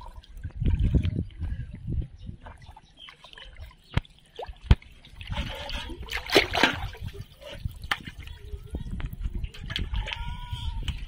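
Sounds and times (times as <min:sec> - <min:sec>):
water sloshing and splashing: 0:00.0 - 0:11.0.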